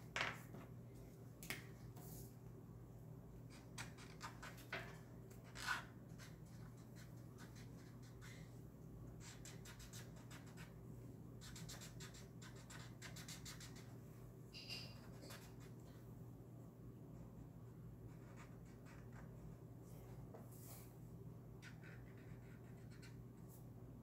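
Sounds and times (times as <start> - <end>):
marker scratching on paper: 5.4 - 8.5, 9.2 - 10.7, 11.4 - 13.9, 14.8 - 15.8, 18.1 - 19.3, 21.6 - 23.2
marker squeak: 14.6 - 15.6.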